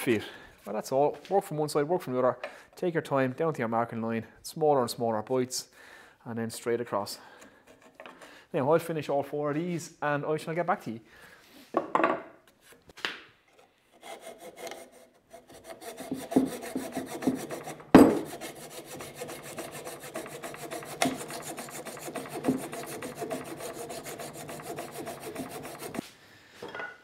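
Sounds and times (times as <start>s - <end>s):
coping saw rasping strokes: 14.0s - 26.1s.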